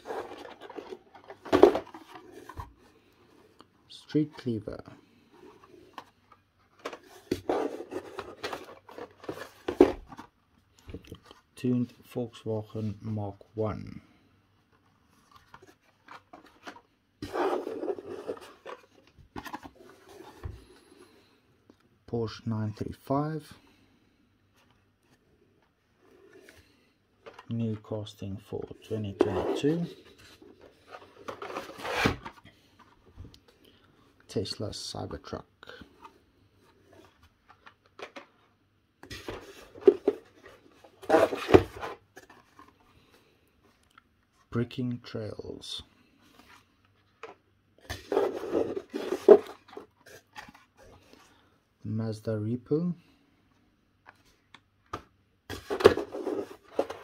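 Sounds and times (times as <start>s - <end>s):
cards rustling in cardboard box: 0.0s - 3.6s, 4.2s - 11.4s, 15.1s - 20.8s, 28.6s - 33.0s, 39.0s - 43.3s, 46.3s - 51.5s, 55.5s - 57.0s.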